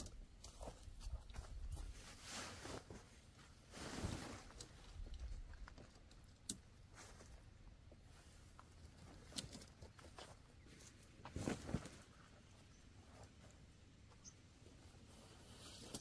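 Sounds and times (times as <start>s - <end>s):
tent fabric rustling: 1.7s - 5.0s, 10.0s - 12.4s.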